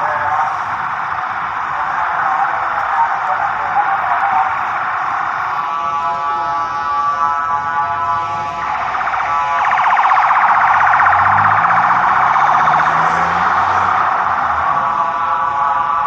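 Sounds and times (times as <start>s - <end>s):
emergency alarm buzzing and trilling: 0.0s - 16.0s.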